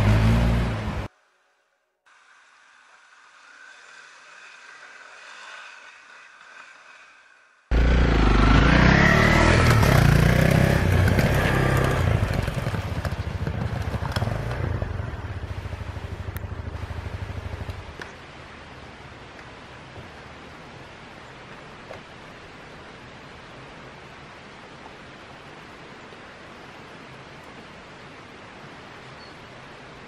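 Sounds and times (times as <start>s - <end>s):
tyres scraping on gravel: 2.3s - 7.7s
motorcycle engine running: 7.7s - 18.0s.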